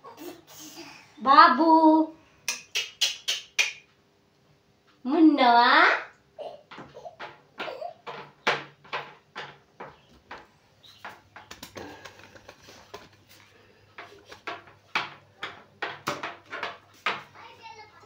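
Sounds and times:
household objects clicking: 0:06.7 - 0:13.3.

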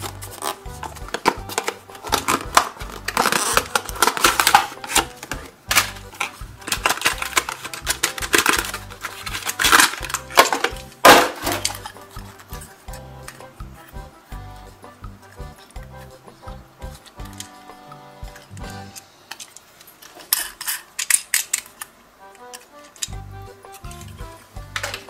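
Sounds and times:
plastic packaging crackling: 0:00.0 - 0:13.4
background music: 0:00.0 - 0:19.4, 0:22.1 - 0:25.0.

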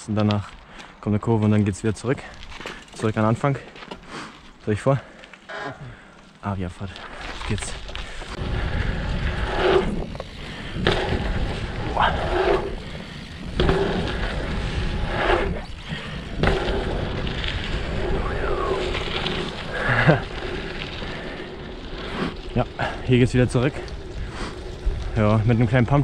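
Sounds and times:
tyres rolling over dirt: 0:01.4 - 0:26.0
wind buffeting microphone: 0:07.7 - 0:26.0.

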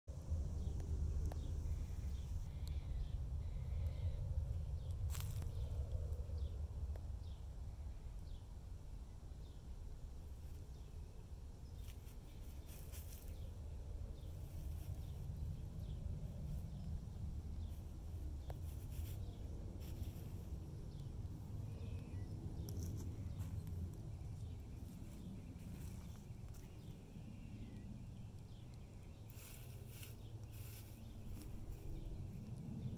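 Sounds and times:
faint low rumble: 0:00.1 - 0:32.9
dry grass rustling and crackling: 0:04.8 - 0:05.9, 0:11.6 - 0:32.9.

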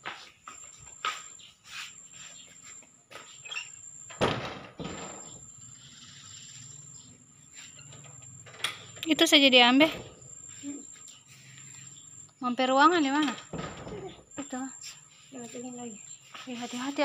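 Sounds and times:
footsteps on tiled floor: 0:00.0 - 0:03.4, 0:14.8 - 0:17.0.

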